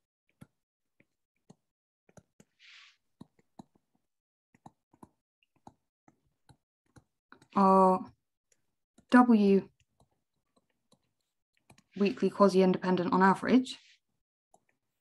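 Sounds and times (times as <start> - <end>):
stylus tapping on tablet: 0.3 - 2.6, 3.2 - 7.6.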